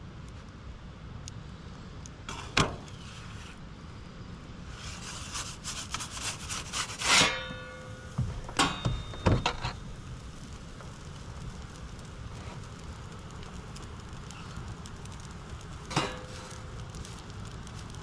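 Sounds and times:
metal peel scraping on stone: 4.8s - 8.0s
metallic ring: 7.1s - 9.8s.

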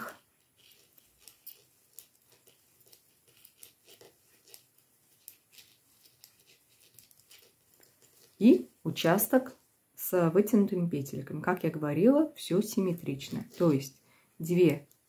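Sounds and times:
knitting needles clicking: 0.0s - 8.6s.

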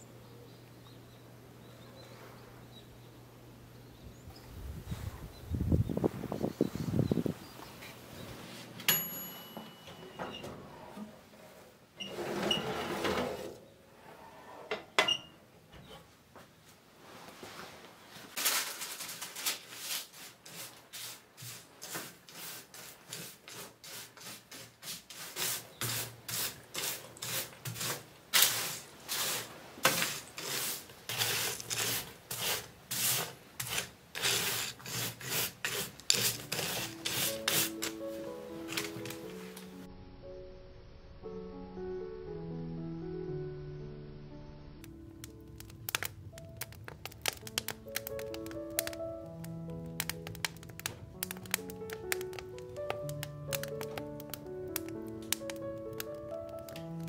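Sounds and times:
tray sliding out of oven: 12.0s - 14.9s
spatula scraping granola on tray: 19.8s - 38.0s
music: 36.4s - 57.0s.

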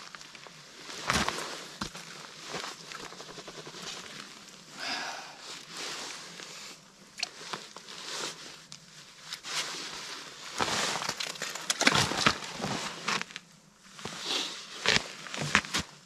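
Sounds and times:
boots crunching in snow: 10.5s - 11.2s, 11.9s - 13.3s.

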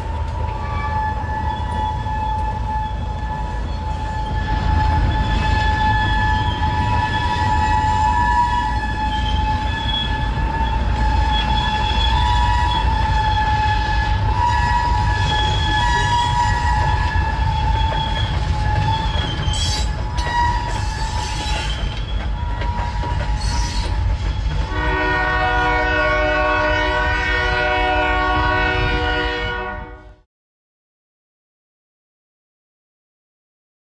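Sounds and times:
high squeal from wheels: 0.2s - 25.2s
locomotive horn blast: 0.3s - 19.2s, 20.0s - 21.5s, 24.6s - 30.2s.

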